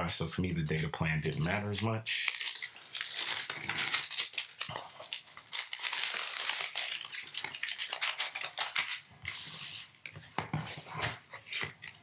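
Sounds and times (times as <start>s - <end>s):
paper wrap crackling and rustling: 1.0s - 9.9s.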